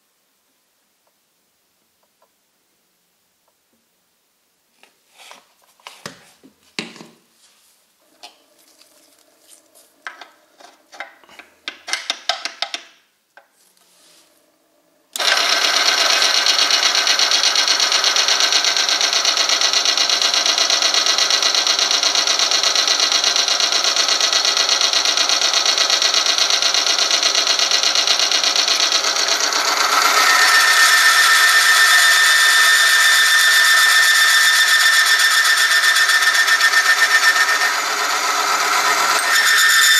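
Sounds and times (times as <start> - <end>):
machine whirring grind: 8.0 - 11.8, 13.7 - 39.9
high squeal: 30.1 - 39.9.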